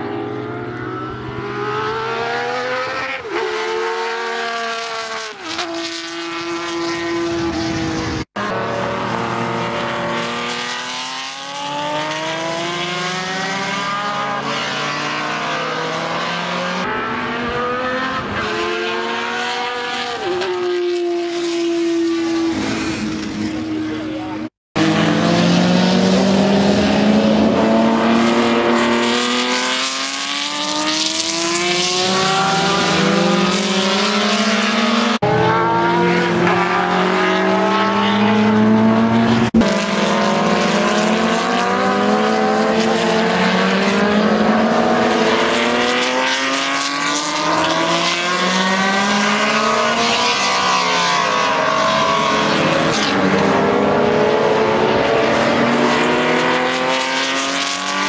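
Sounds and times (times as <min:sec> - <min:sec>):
racing car accelerating past: 0:00.0 - 0:58.0.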